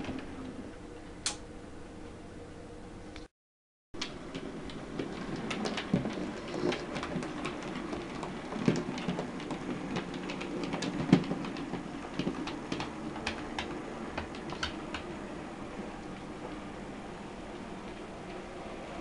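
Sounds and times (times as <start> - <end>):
wheels clicking over rail joints: 4.0 - 15.1.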